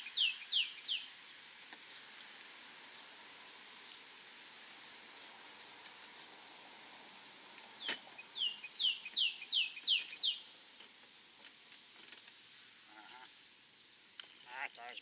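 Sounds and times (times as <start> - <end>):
songbird whistling: 0.0 - 1.1, 7.8 - 10.4.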